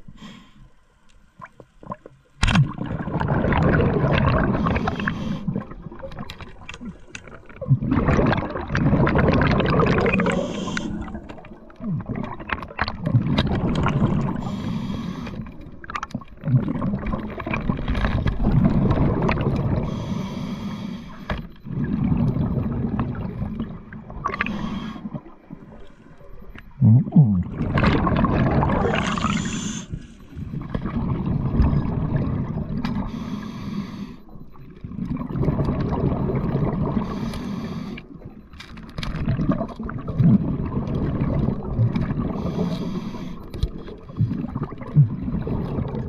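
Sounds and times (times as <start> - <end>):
exhaled bubbles gurgling: 1.4 - 33.5, 34.2 - 46.0
hissing regulator inhalations: 10.2 - 11.2, 14.4 - 15.5, 28.8 - 30.4, 33.0 - 34.3, 37.0 - 38.1, 42.4 - 43.6.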